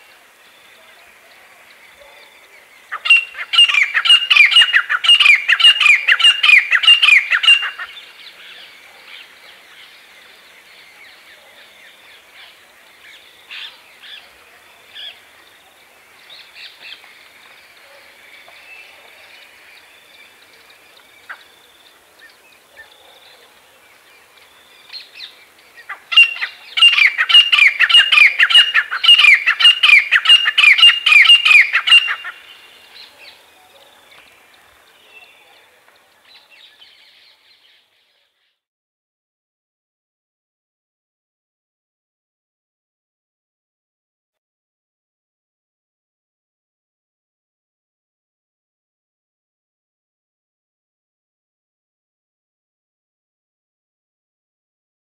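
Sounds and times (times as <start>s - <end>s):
francolins calling shrilly: 2.9s - 8.0s, 25.0s - 33.1s.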